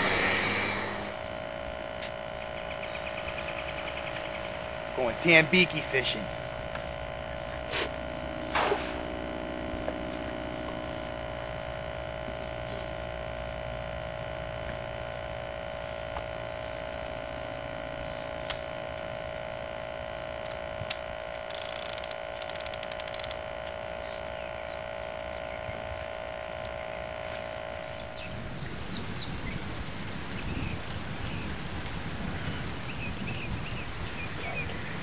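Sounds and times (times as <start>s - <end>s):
rapid high clicking: 0.0s - 28.2s
steady electrical hum: 0.0s - 35.0s
sharp ticks: 1.1s - 8.6s, 18.2s - 19.5s, 20.4s - 25.8s, 26.4s - 27.0s.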